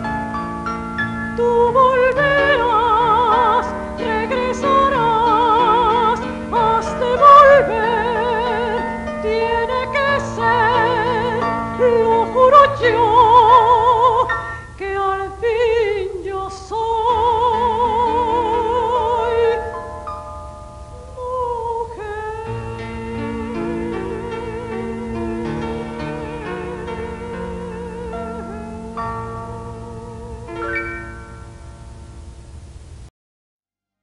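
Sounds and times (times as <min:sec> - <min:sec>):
soprano singing opera: 0:01.3 - 0:19.8, 0:21.0 - 0:31.0
instrumental accompaniment: 0:16.8 - 0:32.8.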